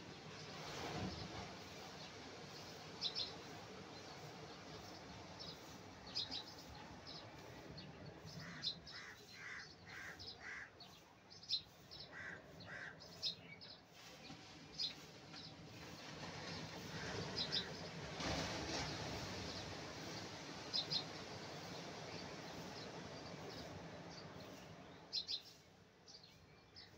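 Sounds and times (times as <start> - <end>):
surf: 0.0 - 10.1, 13.9 - 25.3.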